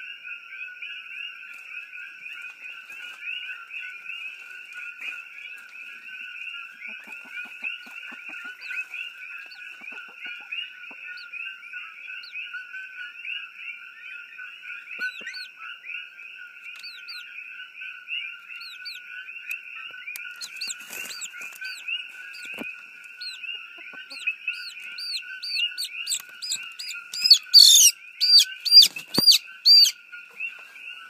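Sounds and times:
frogs calling: 0.0s - 31.0s
sharp chirps: 24.1s - 30.0s.

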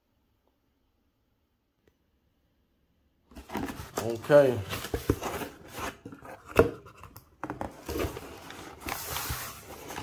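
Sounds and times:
cardboard rustling scrape: 3.3s - 10.0s.

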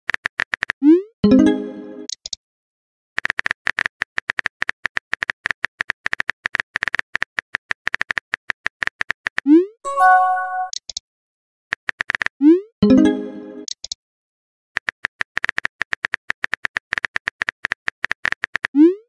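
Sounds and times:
message chime: 1.2s - 2.1s, 9.9s - 10.7s, 12.8s - 13.6s.

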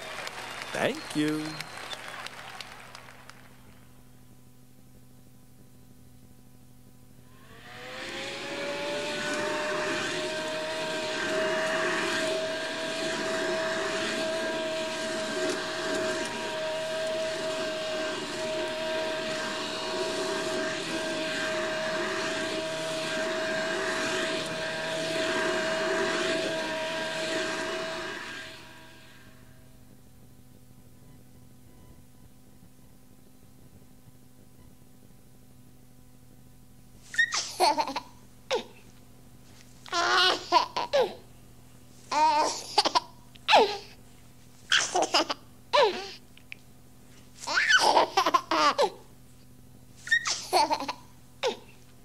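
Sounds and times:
vacuum cleaner running: 0.0s - 2.2s, 7.2s - 30.0s
faint low hum: 0.0s - 52.0s
baby giggling and laughing: 37.2s - 38.7s, 39.9s - 41.2s, 42.1s - 43.9s, 44.7s - 46.2s, 47.4s - 49.0s, 50.1s - 51.7s.

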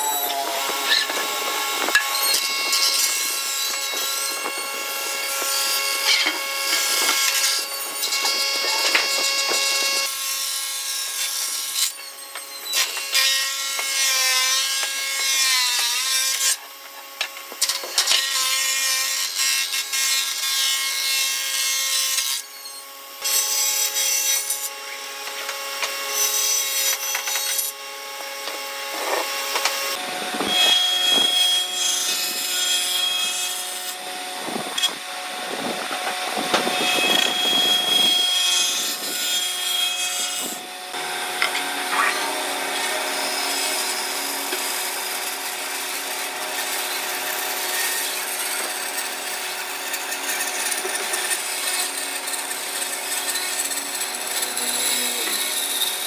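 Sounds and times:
planer whining: 0.0s - 10.2s, 24.2s - 56.0s
wooden boards being planed: 0.0s - 22.4s, 23.3s - 56.0s.

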